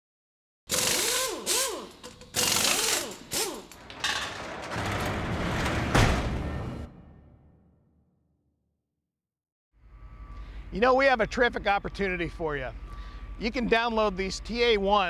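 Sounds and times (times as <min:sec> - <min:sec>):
power tool whirs: 0:00.7 - 0:03.9
loud hit: 0:04.9 - 0:07.8.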